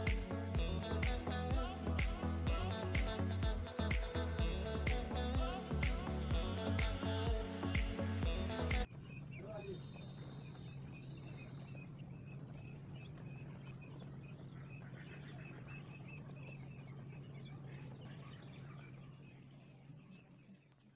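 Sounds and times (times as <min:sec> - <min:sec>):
low steady hum: 0:00.0 - 0:20.9
quail chicks peeping: 0:08.8 - 0:20.9.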